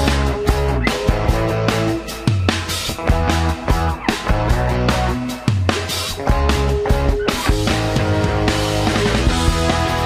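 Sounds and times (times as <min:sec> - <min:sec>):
music with drum beat and bass: 0:00.0 - 0:10.0.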